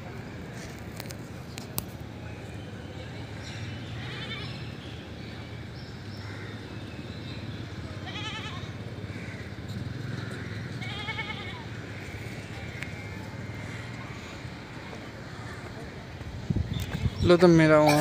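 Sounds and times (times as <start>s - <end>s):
animal bleating: 3.9s - 4.6s, 8.0s - 8.8s, 10.8s - 11.7s.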